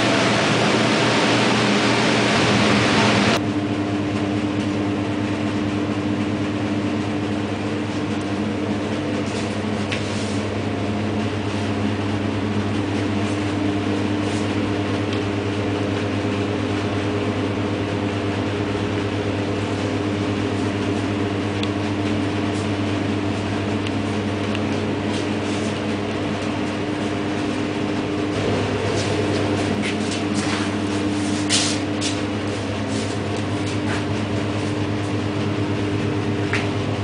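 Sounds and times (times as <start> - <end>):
fan humming: 0.0 - 37.0.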